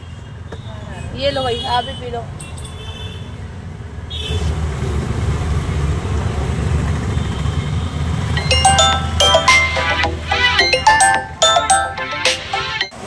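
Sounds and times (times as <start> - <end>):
music with bell-like chimes: 8.4 - 13.0.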